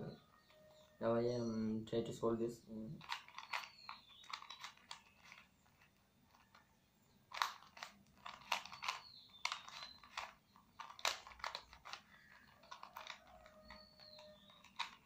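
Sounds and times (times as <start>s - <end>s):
puzzle cube plastic clicks: 3.0s - 15.0s.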